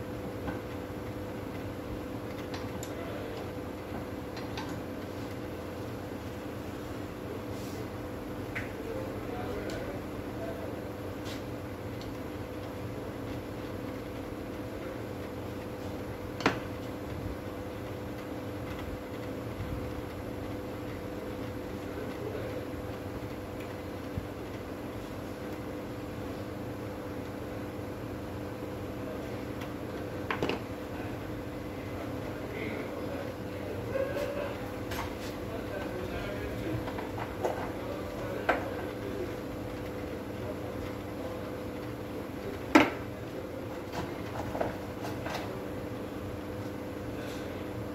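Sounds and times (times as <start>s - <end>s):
steady background hum: 0.0s - 47.9s.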